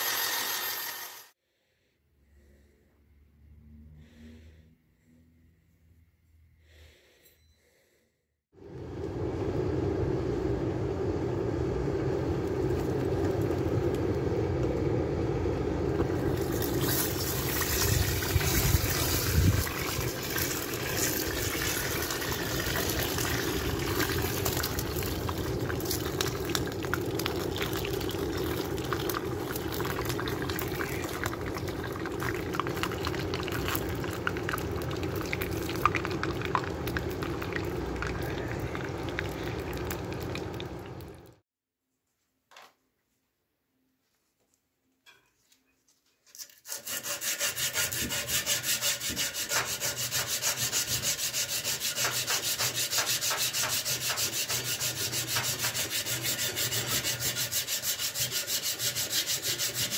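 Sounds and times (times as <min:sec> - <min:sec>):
hot metal sizzling in liquid: 0:16.2 - 0:40.6, 0:46.7 - 0:59.9.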